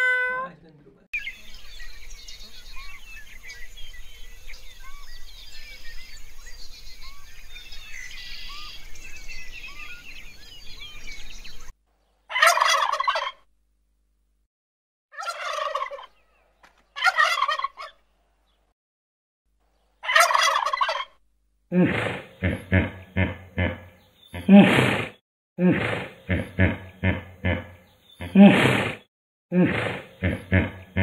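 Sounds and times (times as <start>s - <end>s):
chorus of small chirps and calls: 0.0s - 13.1s
rattling turkey gobbles: 12.3s - 13.4s, 15.2s - 18.0s, 20.0s - 21.1s.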